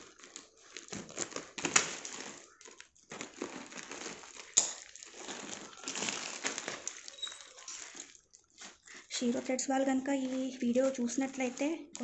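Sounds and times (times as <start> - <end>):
scissors cutting parcel: 0.0 - 9.5
plastic and paper crinkling: 0.0 - 12.0.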